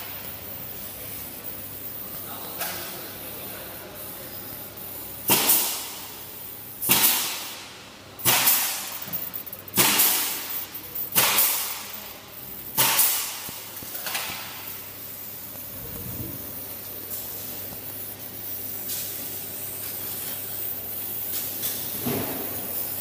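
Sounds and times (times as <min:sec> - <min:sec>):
sharp bursts of air hiss: 0:03.9 - 0:23.0.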